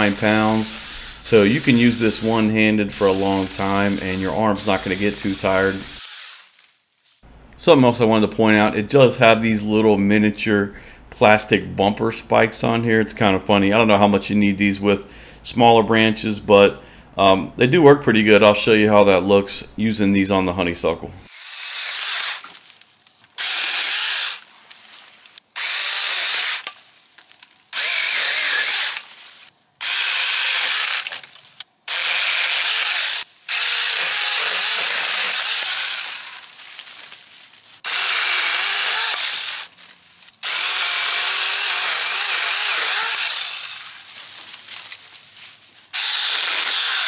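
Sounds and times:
electric chainsaw cutting branches: 0.0s - 6.8s, 21.3s - 37.2s, 37.8s - 45.0s, 45.9s - 47.0s.

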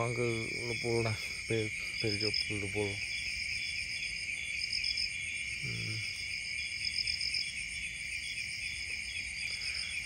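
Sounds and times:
insect trills: 0.0s - 10.0s
low human voice: 5.6s - 6.1s.

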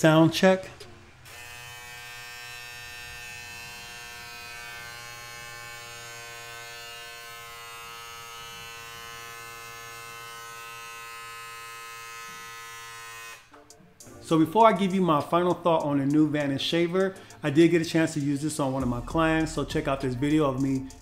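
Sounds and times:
electric shaver buzzing: 0.7s - 13.6s.

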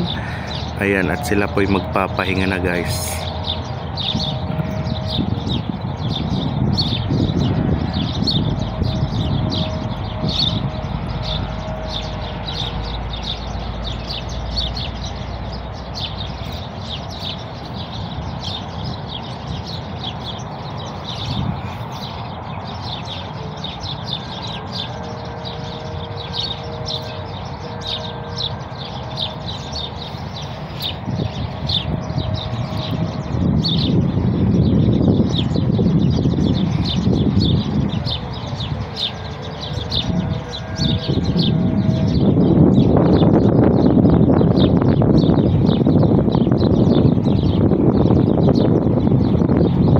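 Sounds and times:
flock of birds chirping: 0.0s - 49.9s.

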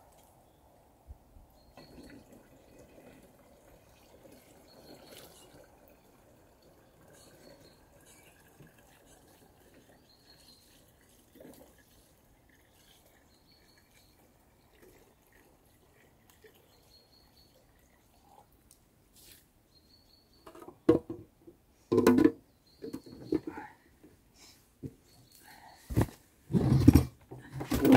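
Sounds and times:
water trickling and dripping: 1.5s - 18.9s.

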